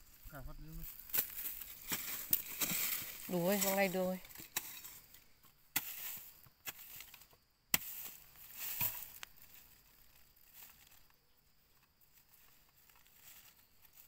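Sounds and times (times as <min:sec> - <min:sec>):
earth and grass scraping: 0:00.0 - 0:14.0
hand rustling through soil: 0:00.9 - 0:05.1
hoe striking dry soil: 0:01.1 - 0:09.3.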